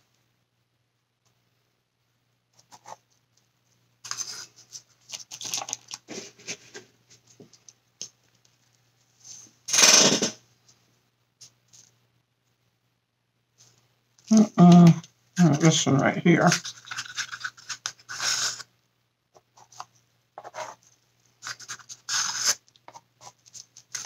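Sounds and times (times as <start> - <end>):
scratching and tapping handling noises: 16.4 - 18.6, 19.4 - 24.0.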